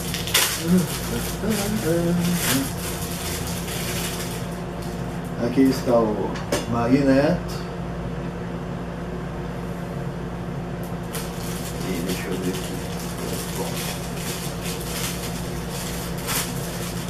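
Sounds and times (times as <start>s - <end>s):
plastic bag crinkling: 0.0s - 5.3s, 11.0s - 17.0s
steady low hum: 0.0s - 17.0s.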